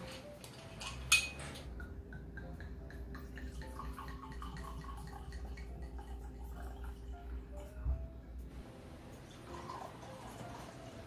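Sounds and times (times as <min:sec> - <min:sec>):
wine pouring into a glass: 0:03.1 - 0:07.4, 0:09.3 - 0:11.0.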